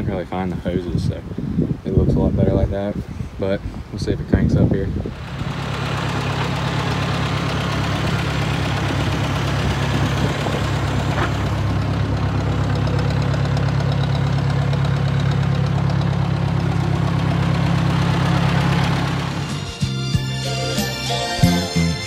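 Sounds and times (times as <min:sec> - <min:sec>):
tractor engine idling: 0:04.9 - 0:22.0.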